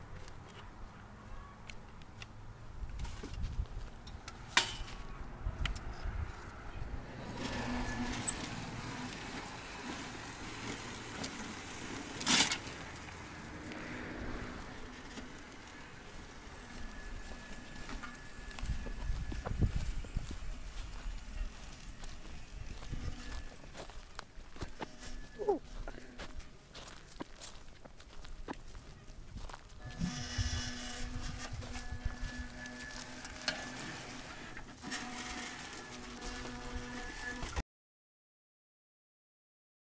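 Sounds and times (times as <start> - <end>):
low rumble of wheels: 0.0 - 37.6
electric cart motors running: 6.5 - 26.5, 29.8 - 37.6.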